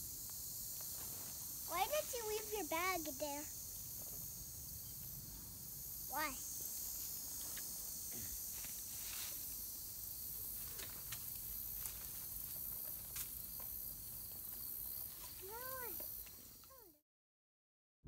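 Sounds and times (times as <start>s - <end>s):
insect drone: 0.0s - 17.0s
child calling: 1.7s - 3.5s, 6.1s - 6.4s, 15.4s - 16.0s.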